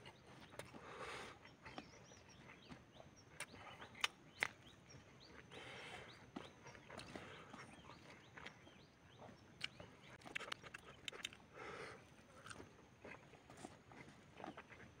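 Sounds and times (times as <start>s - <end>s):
soft chewing: 0.0s - 15.0s
sharp mouth clicks: 3.4s - 4.6s, 9.6s - 11.4s
wet lip smacks: 9.6s - 11.4s.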